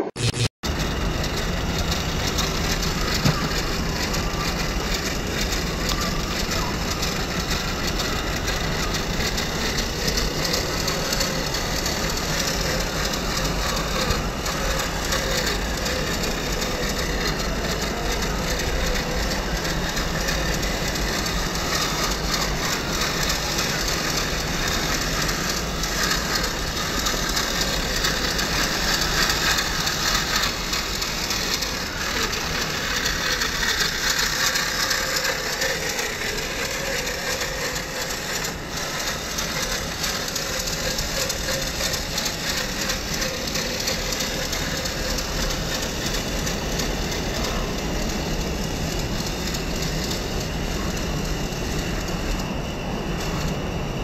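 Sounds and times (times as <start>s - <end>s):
toy car electric motor whining: 0.2s - 54.0s.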